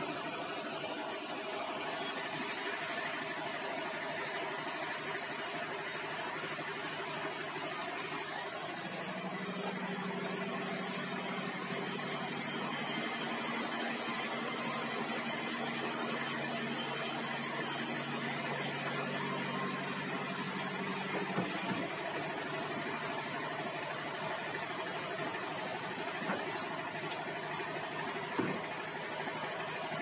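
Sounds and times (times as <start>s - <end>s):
saw blade hissing through log: 8.2s - 11.9s.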